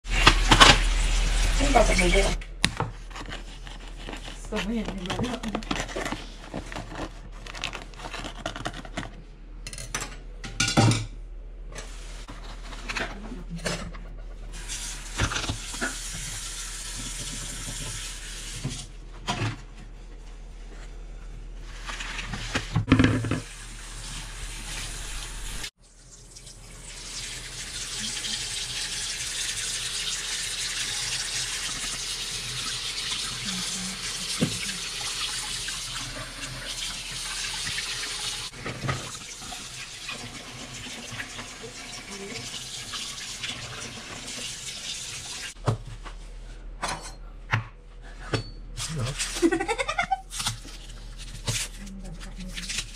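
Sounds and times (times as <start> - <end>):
tap water running into sink: 14.5 - 18.9, 22.6 - 45.6.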